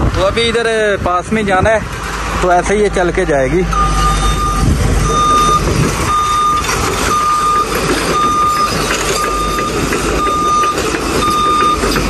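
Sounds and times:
diesel engine running: 0:00.0 - 0:12.0
reversing alarm beeping: 0:03.7 - 0:12.0.

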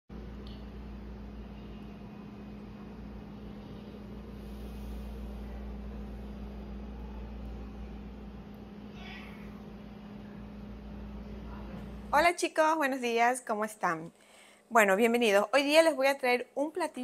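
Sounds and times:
machine humming: 0:00.1 - 0:12.3.

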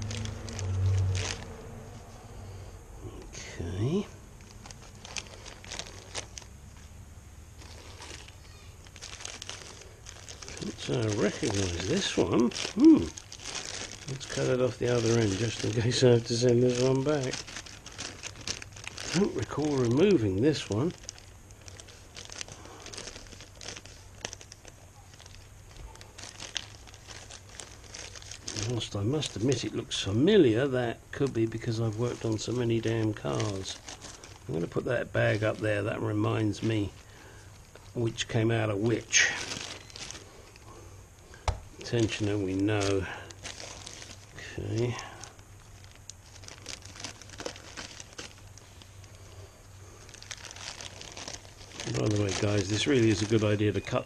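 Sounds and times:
plastic bag crinkling: 0:00.0 - 0:02.1, 0:03.0 - 0:54.0
small clicks and crackles: 0:04.4 - 0:06.6, 0:07.6 - 0:29.7, 0:36.6 - 0:49.2, 0:50.0 - 0:54.0.

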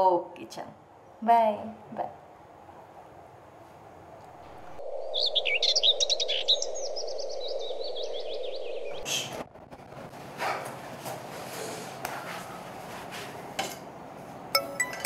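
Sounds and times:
background hum: 0:00.0 - 0:15.0
birds chirping: 0:04.5 - 0:09.3.

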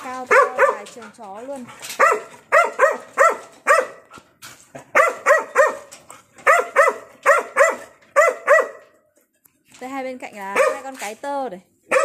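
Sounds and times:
dog barking: 0:00.2 - 0:01.0, 0:01.9 - 0:04.1, 0:04.9 - 0:09.0, 0:10.5 - 0:11.0.

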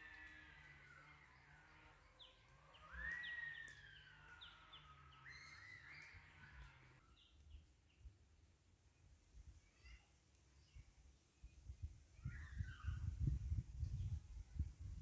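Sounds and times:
bird whistle sliding downward: 0:02.7 - 0:06.3.

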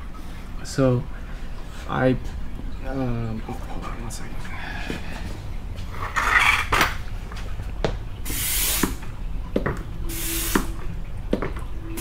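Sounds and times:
hand pump hissing air: 0:08.3 - 0:09.0, 0:10.1 - 0:10.7.

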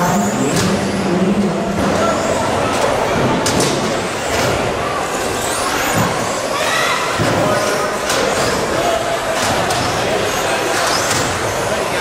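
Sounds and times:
rc car motors whining: 0:03.8 - 0:12.0.

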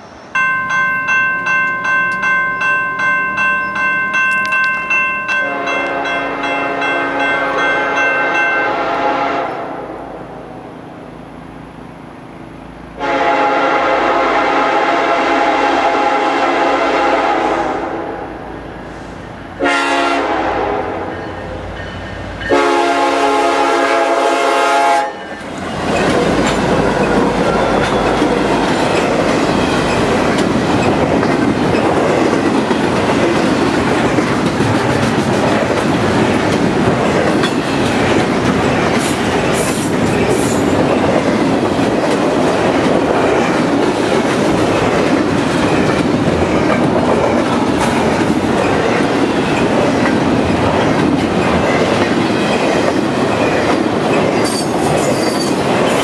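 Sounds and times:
train rumbling and clattering past: 0:00.0 - 0:56.0
locomotive air horn: 0:05.4 - 0:10.1, 0:13.0 - 0:18.4, 0:19.6 - 0:21.2, 0:22.5 - 0:25.2.

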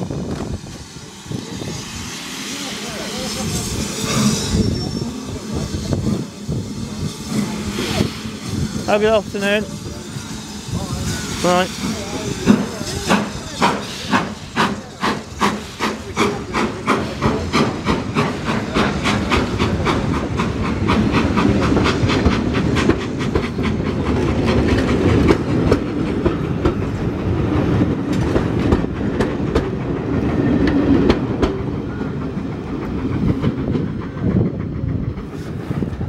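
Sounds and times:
steam locomotive exhaust beats: 0:00.0 - 0:36.0
coaches rumbling and clacking: 0:00.2 - 0:36.0.

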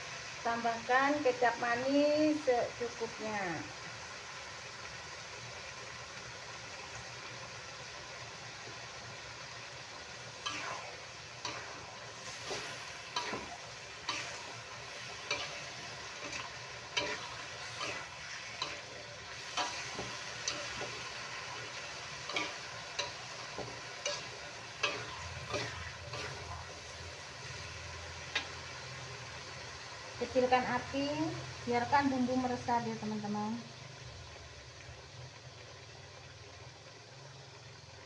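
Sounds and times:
food sizzling in a wok: 0:00.0 - 0:38.0
metal spatula scraping a wok: 0:10.3 - 0:27.4.

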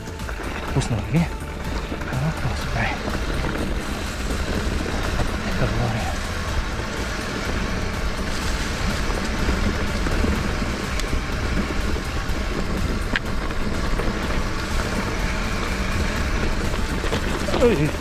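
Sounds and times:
bike rattling clicks: 0:00.0 - 0:18.0
bike tyre noise: 0:00.0 - 0:18.0
wind rumble on microphone: 0:00.0 - 0:18.0.

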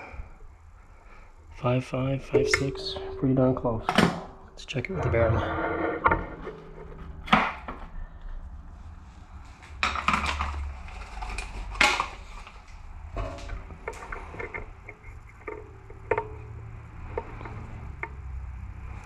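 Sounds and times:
steady low hum: 0:00.0 - 0:09.5
metal clicks and knocks: 0:13.2 - 0:18.3.

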